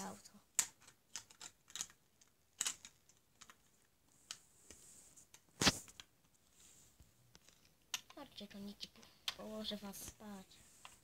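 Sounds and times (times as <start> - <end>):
plastic toy bricks clicking: 0.5 - 3.7, 7.3 - 8.3, 9.2 - 9.5.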